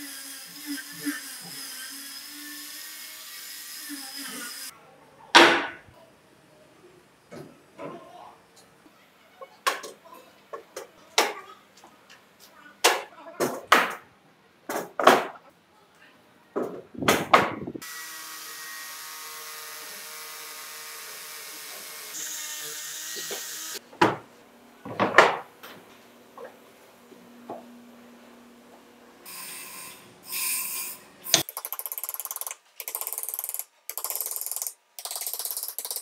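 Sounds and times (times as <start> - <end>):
angle grinder on wood: 0.0 - 4.7, 17.8 - 23.8.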